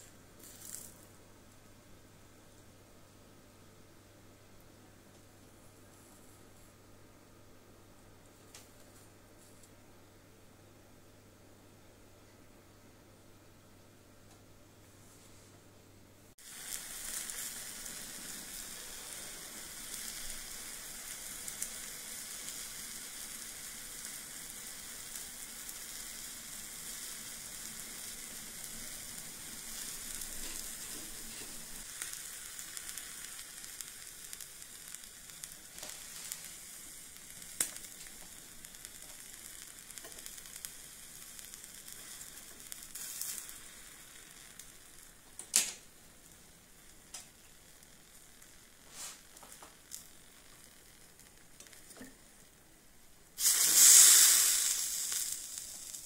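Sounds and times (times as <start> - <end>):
steaks sizzling on grill: 0.4 - 1.0, 16.4 - 52.6, 53.4 - 56.0.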